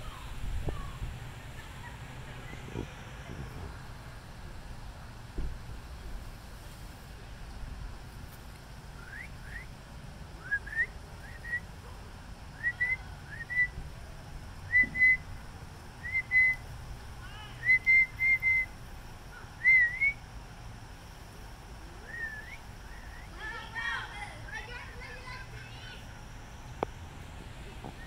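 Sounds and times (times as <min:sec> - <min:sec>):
person whistling for dog: 0:14.7 - 0:15.2.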